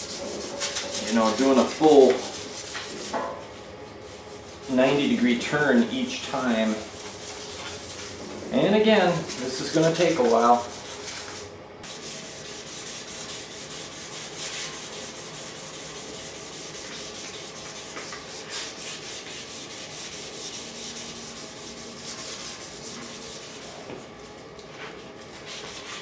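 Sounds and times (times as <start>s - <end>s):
sandpaper rasping on metal tubing: 0.0s - 2.9s, 11.9s - 23.7s.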